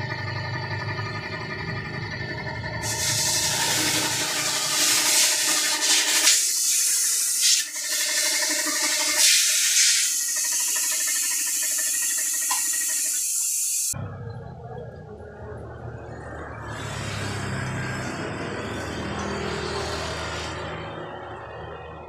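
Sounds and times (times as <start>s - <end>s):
steady machine hum: 0.0s - 13.9s
compressed air hissing into tyre: 2.8s - 8.0s, 9.0s - 14.0s.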